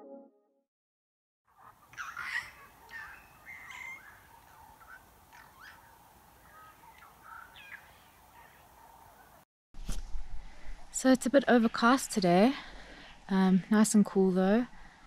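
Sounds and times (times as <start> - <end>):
birds chirping and whistling: 2.0 - 4.3.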